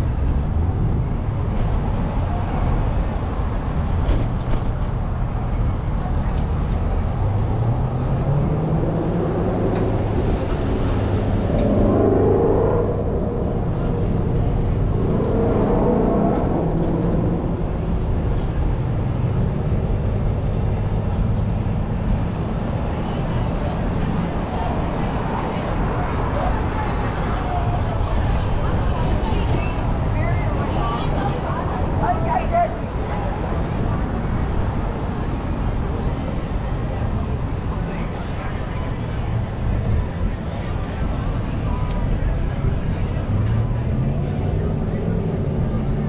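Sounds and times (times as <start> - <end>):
street traffic rumble: 0.0 - 46.0
vehicle engine speeding up: 7.6 - 18.2.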